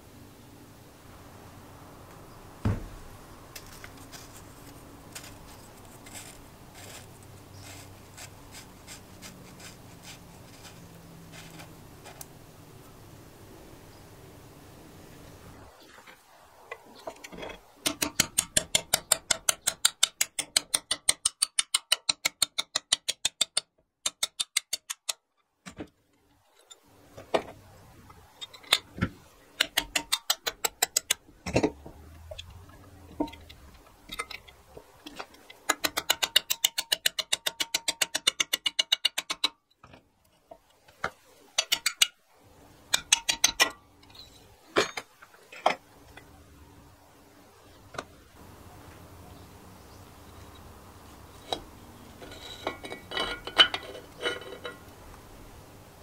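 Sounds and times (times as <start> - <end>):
single metal knocks: 2.6 - 3.0
hammer tapping metal punch: 17.8 - 25.8, 35.3 - 39.6, 42.9 - 43.8.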